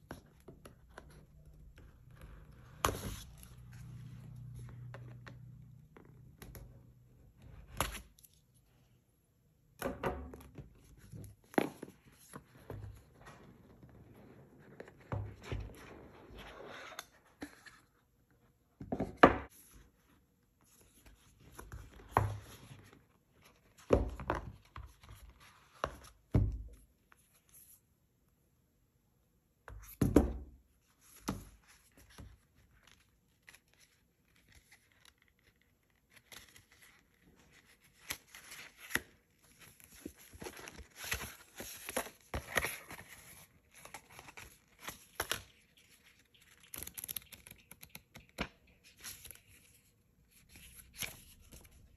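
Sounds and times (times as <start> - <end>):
cardboard and paper rustling: 31.0 - 47.3.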